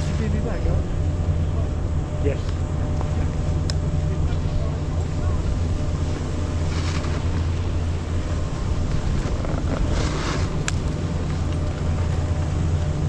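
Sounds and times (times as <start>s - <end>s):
wind buffeting microphone: 0.0s - 13.0s
snowboard edge scraping snow: 5.9s - 11.5s.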